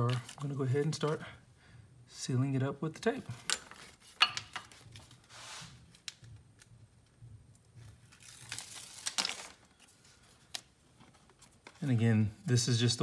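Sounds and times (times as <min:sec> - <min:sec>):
foil tape ripping and crinkling: 0:08.0 - 0:09.8.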